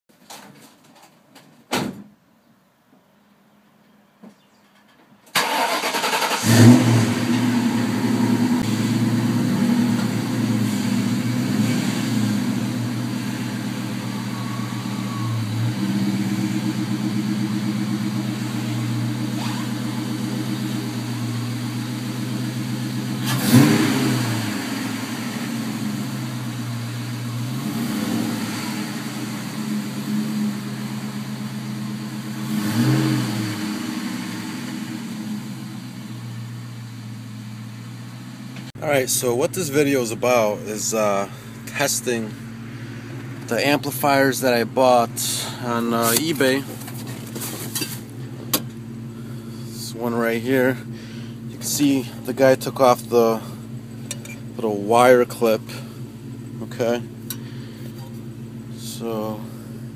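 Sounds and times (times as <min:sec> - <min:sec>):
car engine cranking and starting: 0:05.3 - 0:59.9
car engine idling: 0:05.3 - 0:59.9
engine revving: 0:05.4 - 0:36.6.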